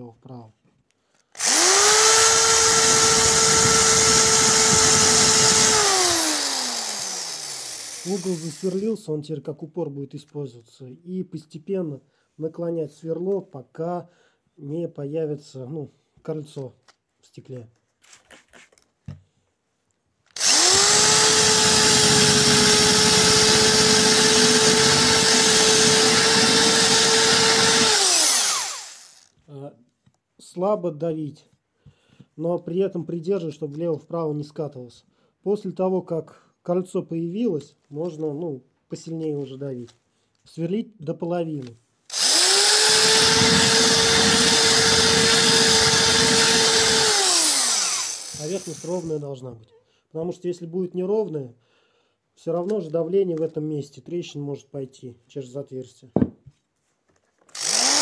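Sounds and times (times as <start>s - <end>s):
electric drill grinding into glass: 1.4s - 8.8s, 20.4s - 29.3s, 42.1s - 49.1s, 57.5s - 58.0s.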